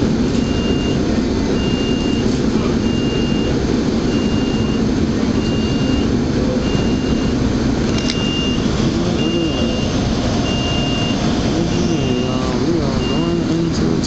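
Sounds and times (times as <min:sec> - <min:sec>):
electronic warning beeps: 0:00.0 - 0:14.0
vehicle rumble: 0:00.0 - 0:14.0.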